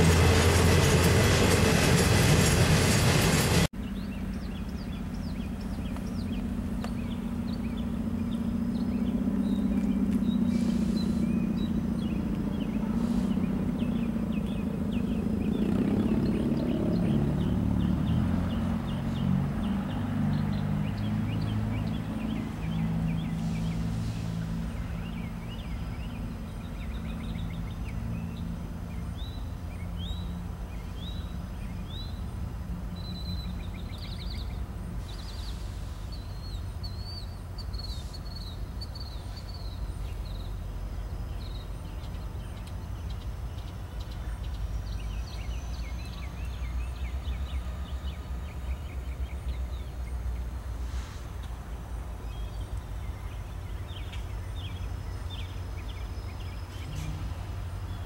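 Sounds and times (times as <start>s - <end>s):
locomotive engine rumbling: 0.0s - 31.6s, 46.2s - 58.0s
small birds chirping: 3.8s - 58.0s.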